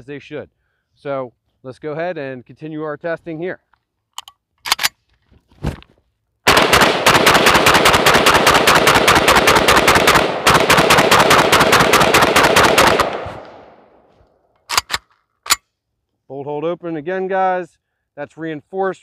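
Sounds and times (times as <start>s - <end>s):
gunshot echo: 6.5s - 14.0s
rifle gunshots: 6.5s - 14.0s.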